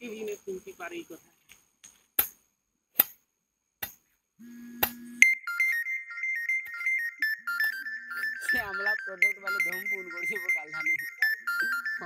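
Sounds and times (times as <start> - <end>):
electronic beeping tune: 5.1 - 12.0.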